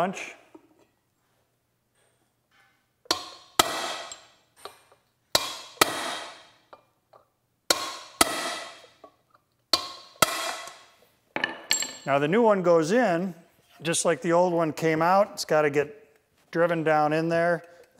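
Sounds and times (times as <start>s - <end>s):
hammer striking steel punch: 3.1s - 4.3s, 5.4s - 6.5s, 7.7s - 8.9s, 9.8s - 10.8s.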